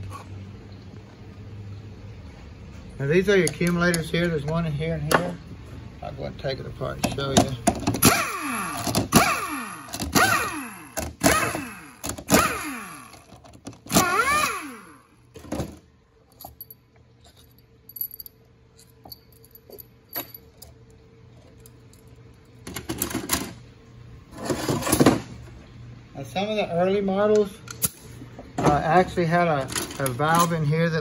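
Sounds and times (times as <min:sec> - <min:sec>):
power driver whirring: 0:07.9 - 0:15.2.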